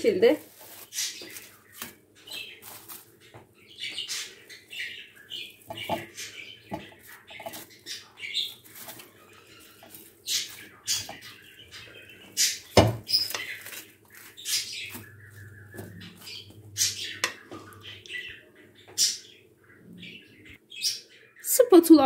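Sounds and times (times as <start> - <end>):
plastic film crinkling: 0.0 - 3.8, 7.0 - 16.6.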